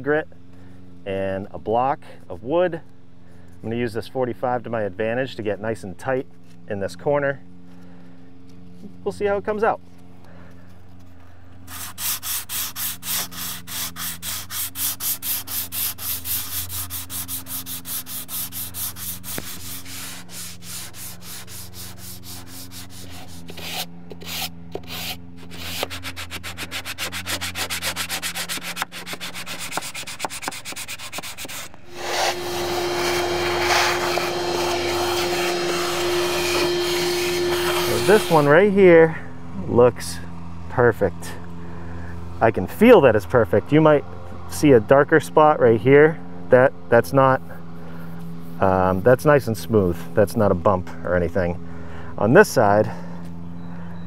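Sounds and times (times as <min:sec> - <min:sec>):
steady hum: 0:02.0 - 0:54.0
sandpaper rubbing strokes: 0:10.6 - 0:39.0, 0:46.9 - 0:50.6.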